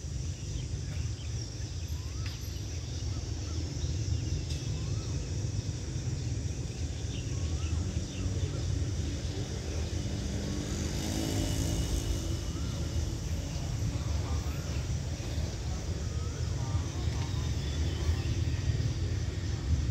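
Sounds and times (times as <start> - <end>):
small birds chirping: 0.0 - 19.8
low engine rumble: 11.9 - 19.9.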